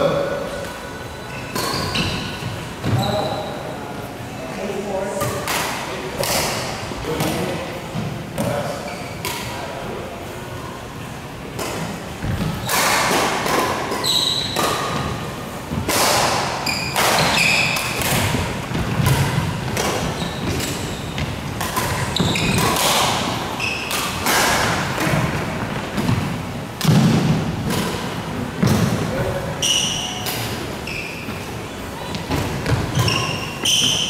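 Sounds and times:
shoes squeaking: 0:00.9 - 0:03.7, 0:13.9 - 0:15.1, 0:16.5 - 0:24.4, 0:28.6 - 0:34.0
rackets striking shuttlecock: 0:15.7 - 0:26.2.

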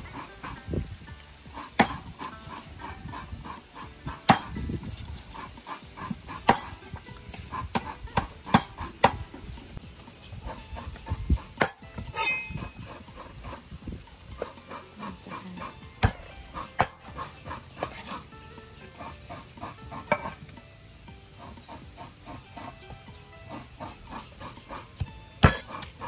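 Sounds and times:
distant farm animals calling: 0:00.0 - 0:26.0
knife chopping chicken: 0:01.8 - 0:02.0, 0:25.4 - 0:25.9.

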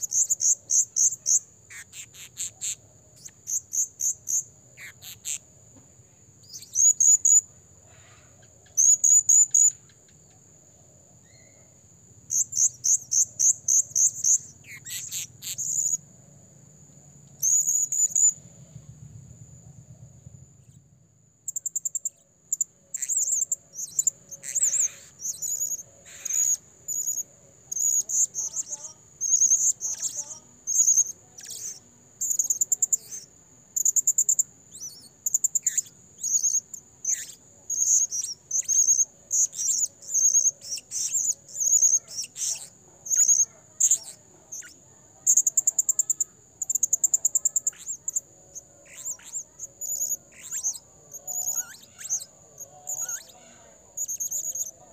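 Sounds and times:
parrot shrill chirps: 0:00.2 - 0:05.4, 0:12.4 - 0:16.0, 0:23.0 - 0:34.1, 0:34.7 - 0:54.7.

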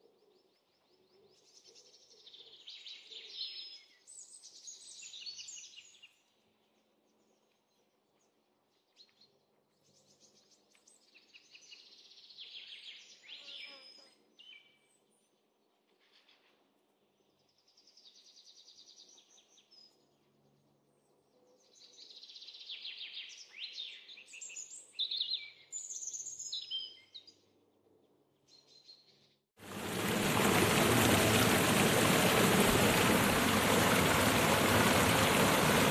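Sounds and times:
rushing running water: 0:29.6 - 0:35.9.

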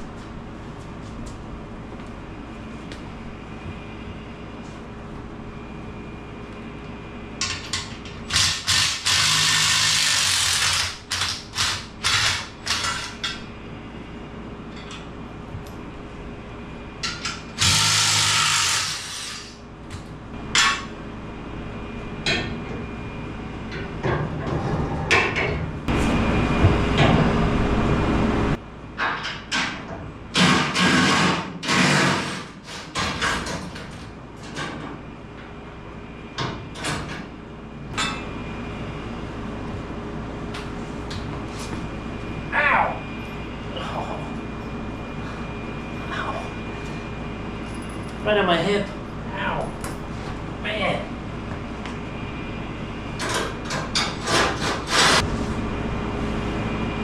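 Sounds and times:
cordless drill running: 0:17.6 - 0:19.5.

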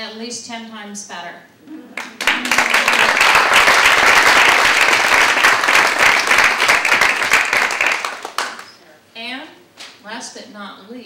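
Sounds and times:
small group clapping: 0:01.9 - 0:08.8.

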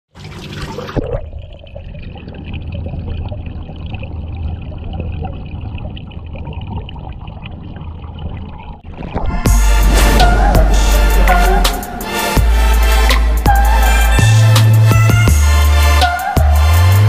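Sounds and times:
water splashing: 0:00.1 - 0:13.5
underwater clicks and bubbling: 0:00.3 - 0:09.5
underwater low rumble: 0:01.0 - 0:13.4.

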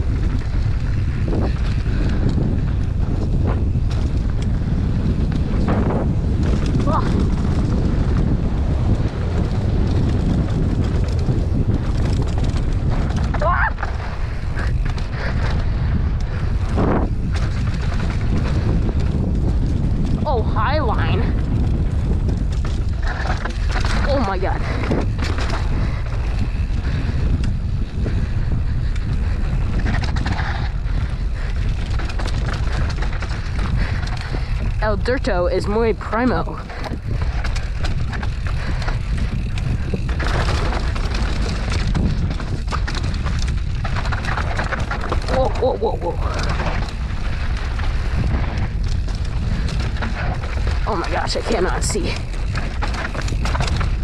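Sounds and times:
bike clicks and rattles: 0:00.0 - 0:54.0
tyres on dirt trail: 0:00.0 - 0:54.0
wind buffeting microphone: 0:00.0 - 0:54.0
tyres crunching over dirt and rock: 0:36.7 - 0:54.0.

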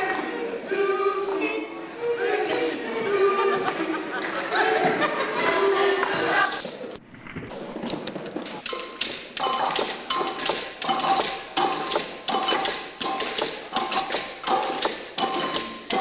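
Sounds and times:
hand drums and percussion rhythm: 0:08.6 - 0:16.0.

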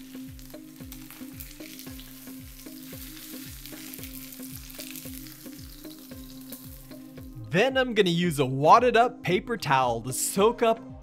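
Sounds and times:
oil sizzling in a frying pan: 0:00.0 - 0:07.4
background music with steady beat: 0:00.0 - 0:11.0.

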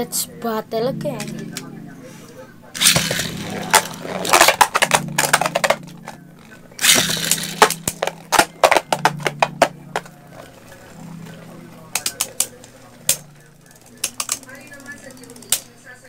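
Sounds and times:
spinning tops clicking and clattering: 0:02.8 - 0:11.4, 0:12.0 - 0:15.8.

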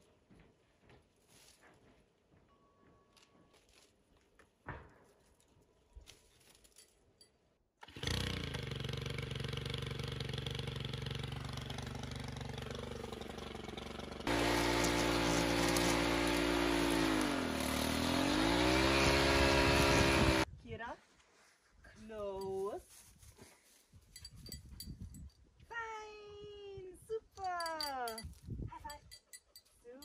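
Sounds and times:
string trimmer engine running: 0:07.8 - 0:20.5.

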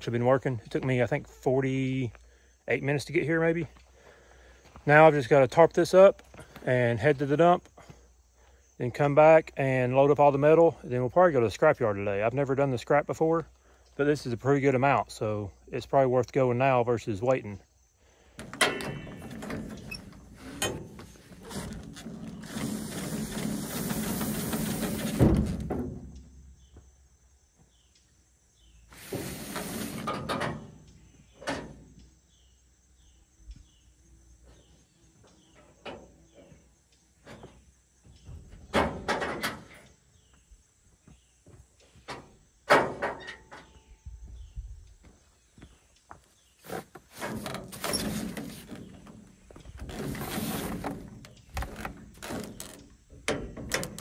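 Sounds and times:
tarp rustling and sliding: 0:20.3 - 0:25.7, 0:28.9 - 0:30.2, 0:49.8 - 0:52.8.

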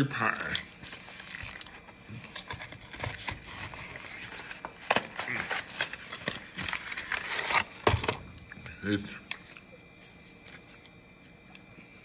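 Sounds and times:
packaging crinkling and rustling: 0:00.3 - 0:08.5.

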